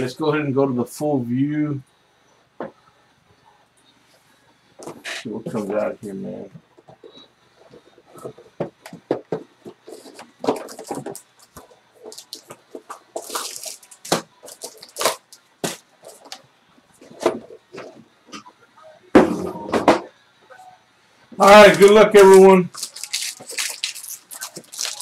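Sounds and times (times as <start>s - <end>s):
plastic wrap crinkling: 9.8s - 16.4s, 21.4s - 25.0s.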